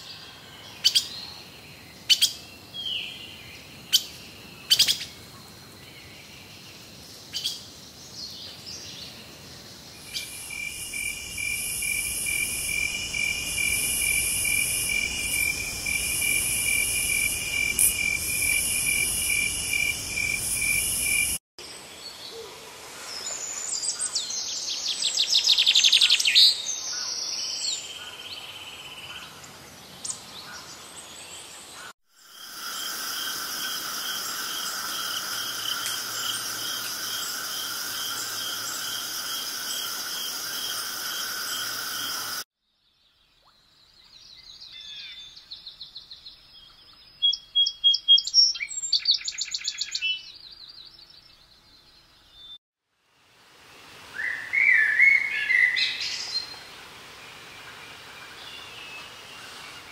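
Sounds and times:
songbird trilling song: 0:02.0 - 0:05.2, 0:42.9 - 0:52.6
pulsing insect trill: 0:10.1 - 0:21.4, 0:32.2 - 0:42.4.

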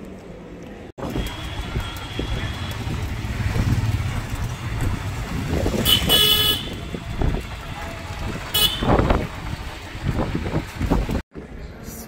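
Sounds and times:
road noise: 0:00.0 - 0:12.0
auto-rickshaw engine running: 0:01.0 - 0:11.2
horn toots: 0:05.7 - 0:07.6, 0:08.5 - 0:09.1.

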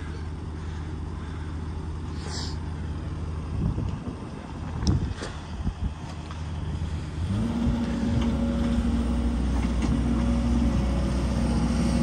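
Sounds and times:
excavator diesel engine revving: 0:06.6 - 0:12.0.

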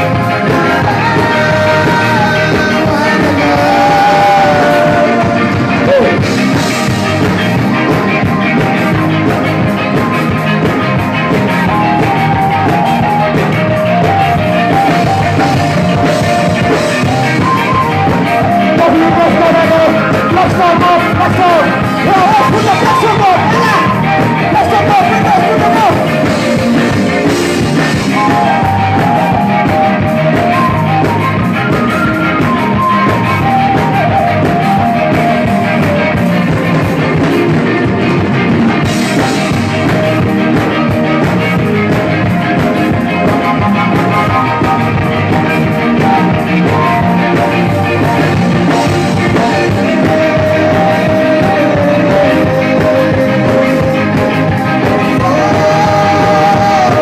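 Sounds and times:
live rock band: 0:00.0 - 0:57.0
man singing into microphone: 0:00.2 - 0:06.3, 0:18.5 - 0:26.1, 0:49.3 - 0:57.0.

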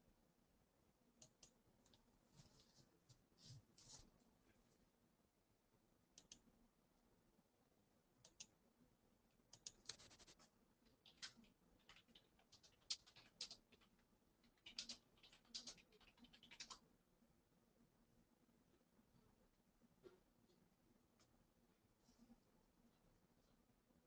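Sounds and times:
small clicks: 0:09.5 - 0:10.1.

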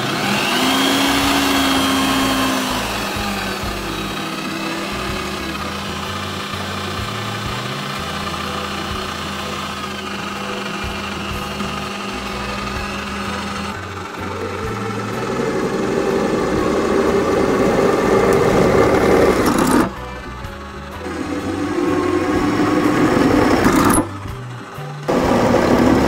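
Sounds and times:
drill press motor running: 0:00.0 - 0:26.0.

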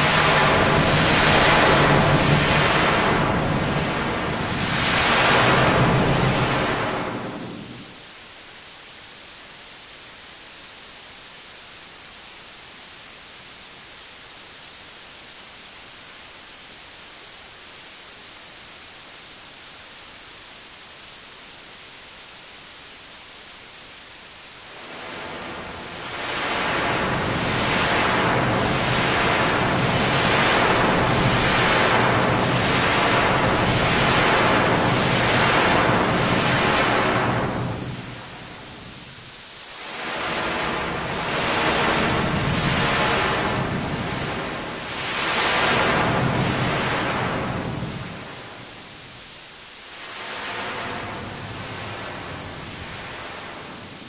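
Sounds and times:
pulsing rushing noise: 0:00.0 - 0:08.0, 0:24.5 - 0:49.2, 0:49.8 - 0:54.0
steady high hiss: 0:00.0 - 0:54.0.

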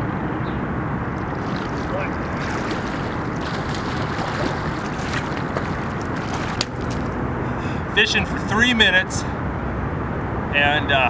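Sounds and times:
fish splashing at the surface: 0:01.1 - 0:07.3.

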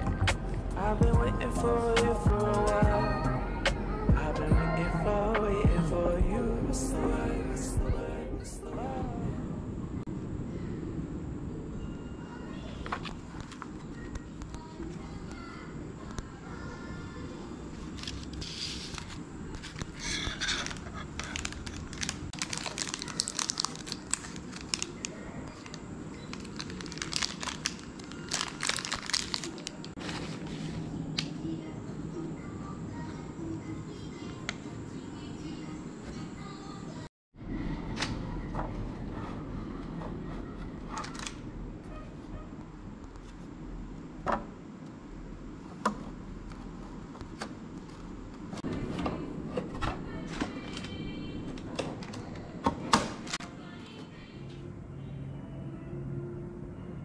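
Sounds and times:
low steady hum: 0:00.0 - 0:57.0
plastic bag crinkling: 0:17.8 - 0:30.5.

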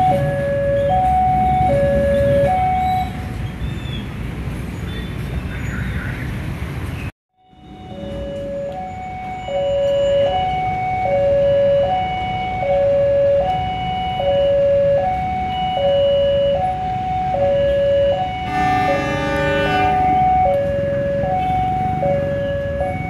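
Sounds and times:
level crossing two-tone alarm: 0:00.0 - 0:03.2, 0:07.4 - 0:23.0
many-pitched tone: 0:07.4 - 0:10.4.

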